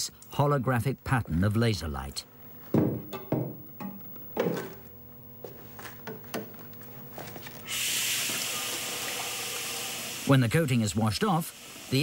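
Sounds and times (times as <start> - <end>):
low steady hum: 0.0 - 7.8
faint knocks: 2.7 - 4.9.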